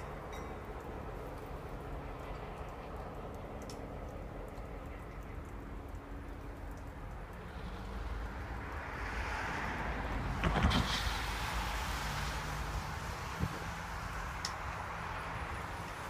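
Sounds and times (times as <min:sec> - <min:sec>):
locomotive engine rumble: 0:00.0 - 0:16.0
hiss: 0:07.4 - 0:14.8.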